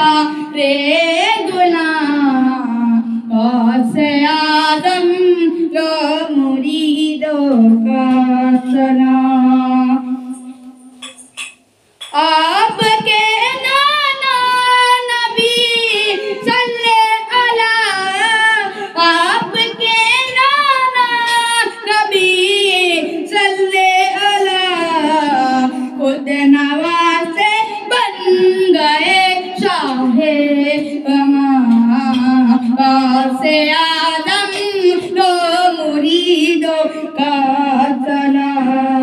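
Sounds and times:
boy singing into a microphone: 0.0s - 39.0s.

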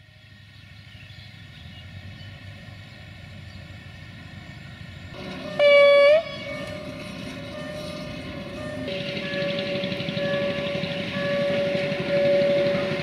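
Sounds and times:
rail vehicle running: 0.0s - 13.0s
short horn blast: 5.4s - 13.0s.

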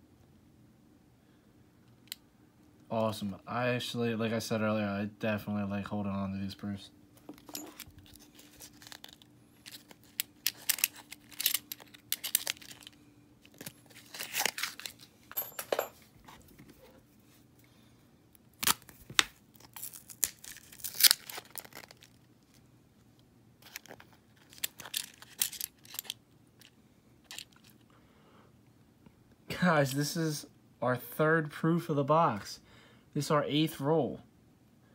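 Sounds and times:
paper wrappers tearing and crinkling: 8.0s - 15.1s, 18.5s - 22.5s, 23.6s - 26.2s.

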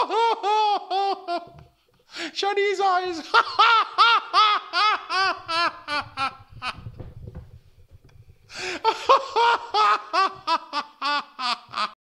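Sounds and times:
man laughing hard: 0.0s - 1.7s, 3.2s - 6.8s, 8.6s - 12.0s.

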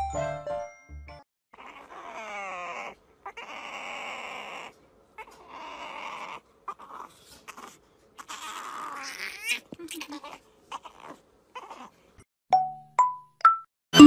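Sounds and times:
baby animal whining and squealing: 1.5s - 12.2s.

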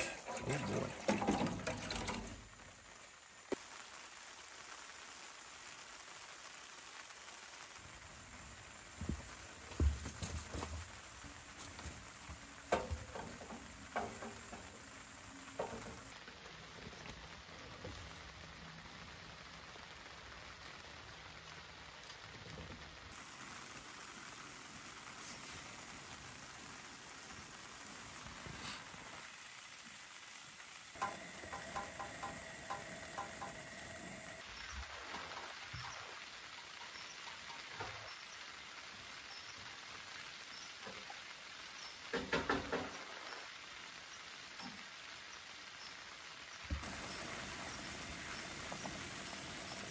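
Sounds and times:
heavy raindrops landing: 0.0s - 45.6s, 46.2s - 49.9s
rain pattering: 0.0s - 49.9s
steady faint hiss: 0.0s - 49.9s
kettle clinking on wire grate: 31.0s - 34.0s.

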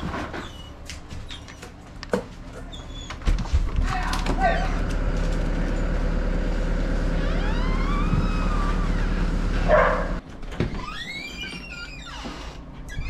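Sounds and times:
low machine hum: 2.4s - 10.2s
door shutting: 7.0s - 13.0s.

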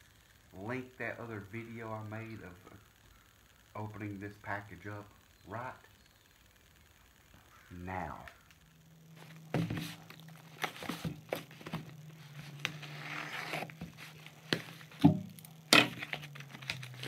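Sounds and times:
low hum: 0.0s - 17.0s
cardboard box knocks and scrapes: 9.5s - 11.9s.

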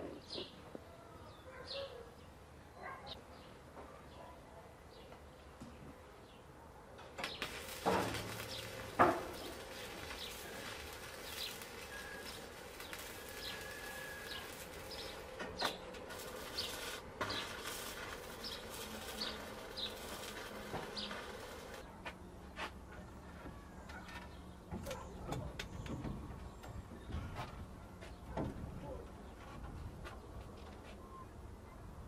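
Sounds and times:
arc welding crackling hiss: 7.2s - 21.8s
small birds chirping: 7.2s - 21.9s.

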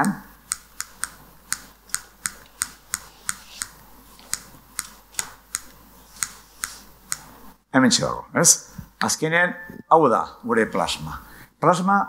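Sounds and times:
sharp dry clicks: 0.4s - 7.3s.

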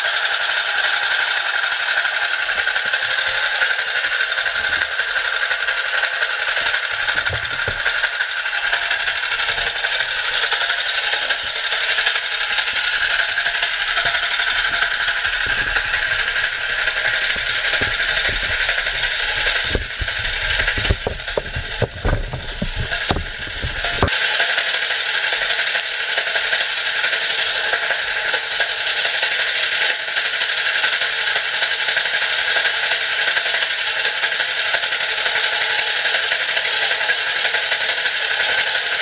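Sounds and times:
small winch engine rattling: 0.0s - 39.0s
low knocks: 6.9s - 8.1s, 13.8s - 24.1s.

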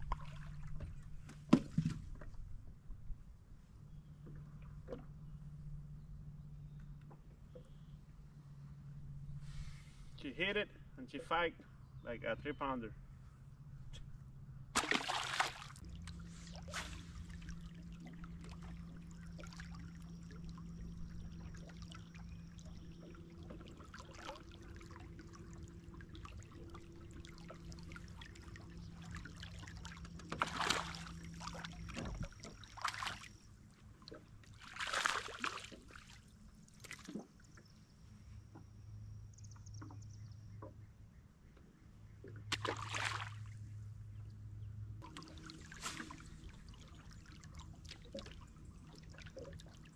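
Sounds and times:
low steady hum: 0.0s - 49.9s
fish thrashing at surface: 14.8s - 15.8s
water splashing: 14.8s - 37.2s, 42.5s - 43.6s, 45.0s - 49.9s.

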